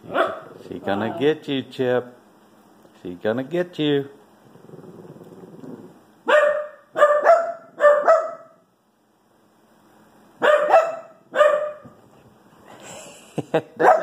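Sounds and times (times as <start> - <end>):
dog barking: 0.1 - 0.6, 6.3 - 8.6, 10.4 - 12.0, 13.8 - 14.0.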